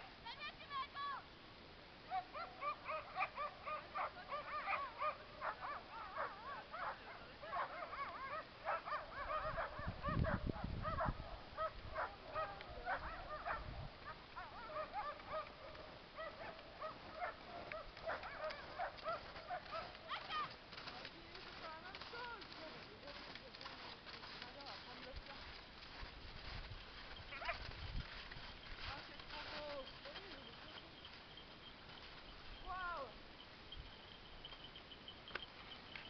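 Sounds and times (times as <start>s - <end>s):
dogs barking and yipping: 2.1s - 20.6s, 27.1s - 31.8s.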